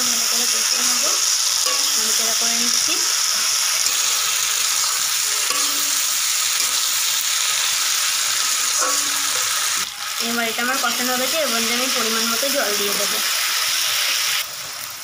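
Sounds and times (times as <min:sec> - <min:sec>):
food sizzling in hot oil: 0:00.0 - 0:15.0
spatula scraping a pan: 0:03.1 - 0:10.2.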